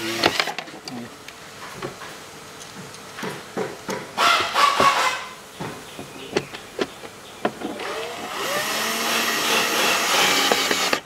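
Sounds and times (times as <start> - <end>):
small electric motor whirring: 0.0 - 0.6, 7.6 - 11.0.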